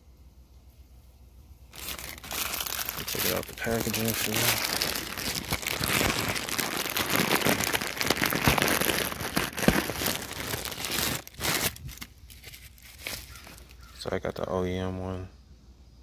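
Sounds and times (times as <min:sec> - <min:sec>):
plastic packaging crinkling: 0:01.7 - 0:13.9.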